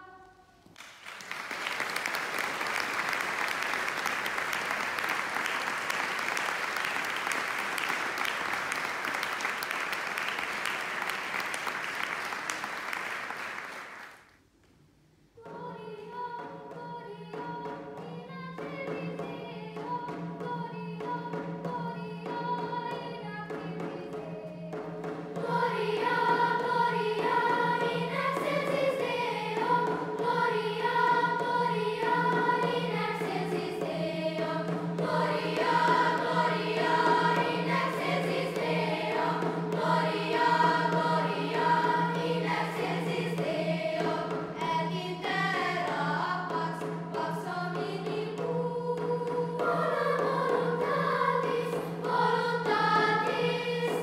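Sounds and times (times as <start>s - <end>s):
audience applause: 0.8s - 14.2s
choir singing: 15.4s - 54.0s.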